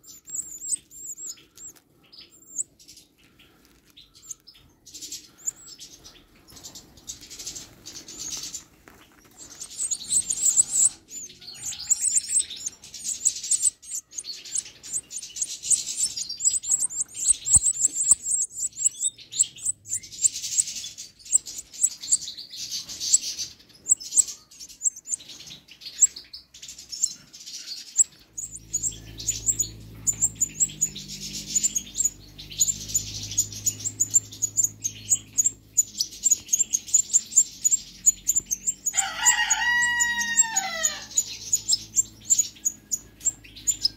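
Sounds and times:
nestlings begging chirps: 0:00.0 - 0:43.9
low steady hum: 0:27.9 - 0:43.9.

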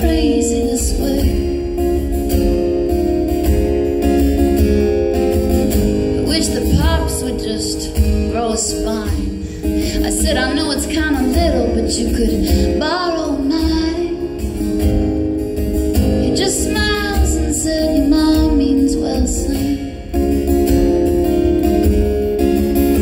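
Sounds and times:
woman singing: 0:00.0 - 0:02.0, 0:06.1 - 0:14.9, 0:16.0 - 0:20.2
acoustic guitar strumming: 0:00.0 - 0:23.0.

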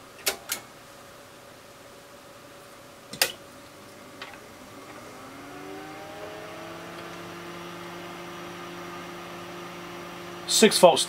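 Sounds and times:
motor hum rising in pitch: 0:03.5 - 0:10.5.

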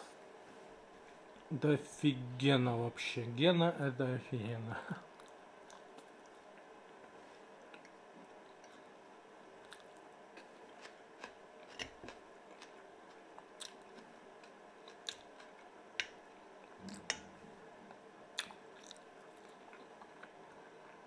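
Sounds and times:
soft chewing: 0:05.0 - 0:21.0.

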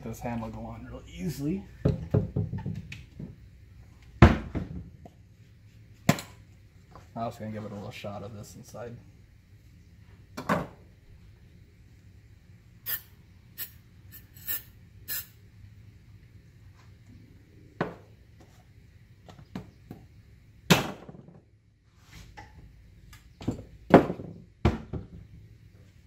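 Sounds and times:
knocks and rubbing of parts: 0:01.8 - 0:03.4
aerosol can spraying: 0:12.9 - 0:15.4.

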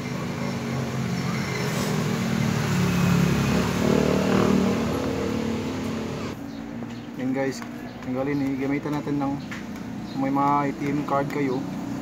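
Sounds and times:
vehicle engine passing by: 0:00.0 - 0:06.8.

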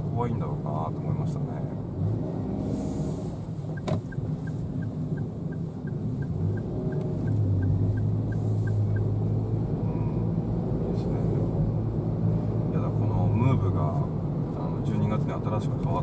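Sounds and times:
car engine hum: 0:00.0 - 0:16.0
road noise: 0:00.0 - 0:16.0
turn signal ticking: 0:03.4 - 0:09.5.

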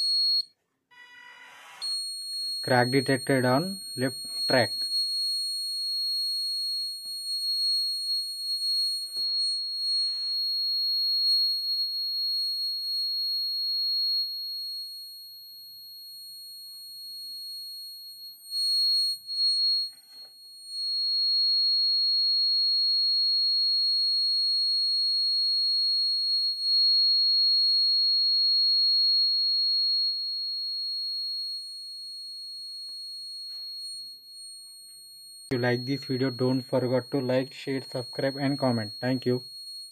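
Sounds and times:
high-pitched electronic buzzer: 0:01.0 - 0:04.9, 0:09.1 - 0:10.4.

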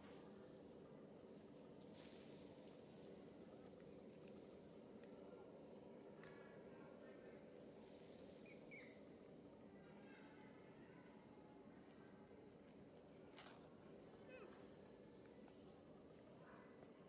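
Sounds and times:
high-pitched insect drone: 0:00.0 - 0:17.0
faint chirps: 0:05.0 - 0:17.0.

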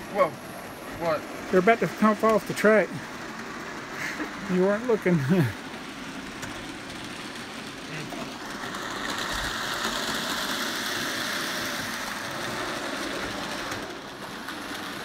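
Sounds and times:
model locomotives whirring: 0:00.0 - 0:15.0.

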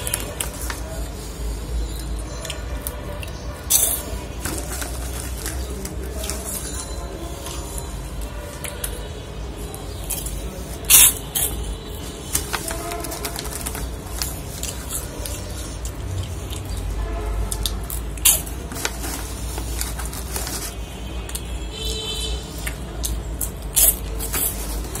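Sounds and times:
crunching and chewing snacks: 0:00.0 - 0:09.1, 0:09.7 - 0:25.0
snack bag crinkling: 0:12.3 - 0:16.7, 0:17.6 - 0:20.9.

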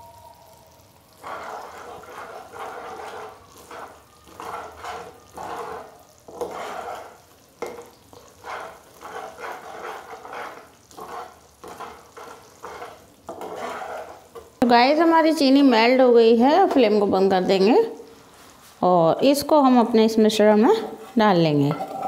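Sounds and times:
syrup sizzling and bubbling: 0:00.0 - 0:21.2
metal ladle scraping a pan: 0:01.2 - 0:14.6.

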